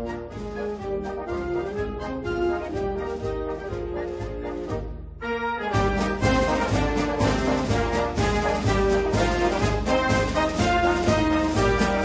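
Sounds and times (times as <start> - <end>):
held brass notes: 0.0 - 12.0
steady beat: 5.7 - 12.0.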